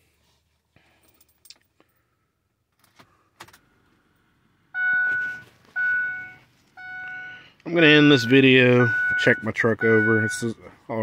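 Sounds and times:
electronic warning chime: 4.8 - 10.6.

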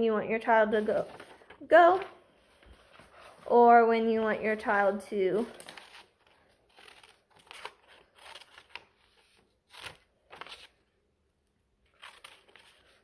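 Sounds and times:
scissors cutting paper: 5.6 - 8.9, 11.9 - 13.0.

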